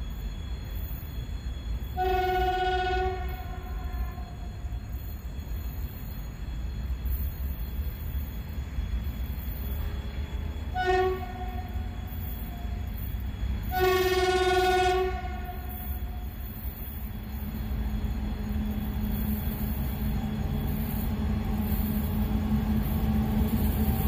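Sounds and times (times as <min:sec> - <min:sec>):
low train rumble: 0:00.0 - 0:24.0
locomotive horn: 0:02.0 - 0:04.5, 0:09.8 - 0:12.8, 0:13.6 - 0:16.2.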